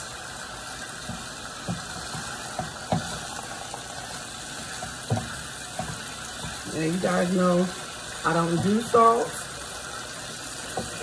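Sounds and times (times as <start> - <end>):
chicken sizzling in a skillet: 0.0 - 11.0
wooden spoon knocking on pan: 1.0 - 3.5, 4.5 - 7.6, 8.2 - 9.4, 10.6 - 11.0.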